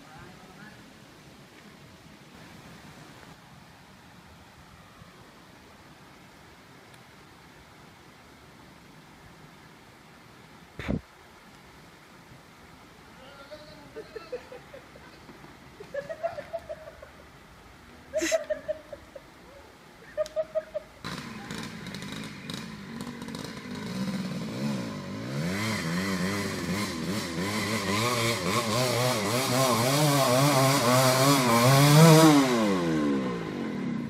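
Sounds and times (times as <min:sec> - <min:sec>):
dirt bike engine revving: 0:21.0 - 0:34.0.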